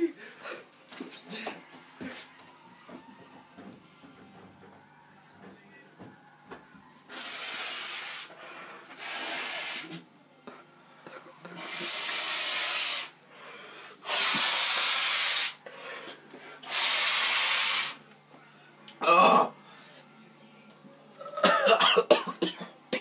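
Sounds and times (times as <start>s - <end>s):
man blowing his nose: 7.1s - 10.0s, 11.5s - 13.2s, 13.8s - 15.6s, 16.6s - 18.0s.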